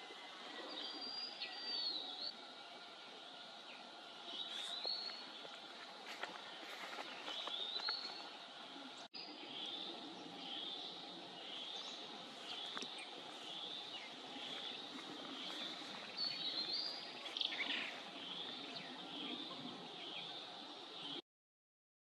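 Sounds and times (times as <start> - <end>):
birds chirping: 0.0 - 21.2.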